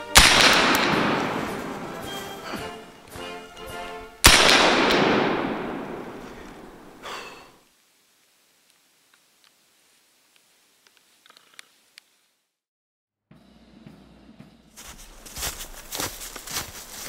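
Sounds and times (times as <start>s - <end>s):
rifle gunshot: 0.0s - 2.1s, 4.2s - 7.0s.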